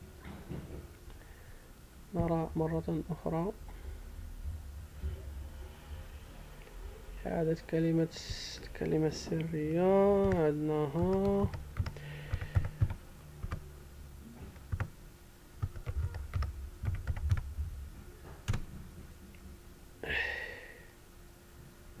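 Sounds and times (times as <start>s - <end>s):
faint steady hum: 0.0s - 22.0s
keyboard key clicks: 10.2s - 10.4s, 11.0s - 13.6s, 15.6s - 17.4s.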